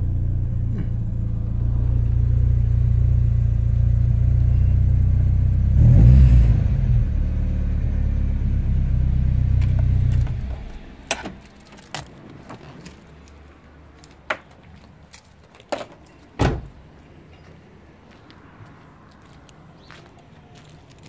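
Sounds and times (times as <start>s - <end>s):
car engine idling: 0.0s - 5.7s, 7.0s - 12.0s
car door slam: 16.4s - 16.8s.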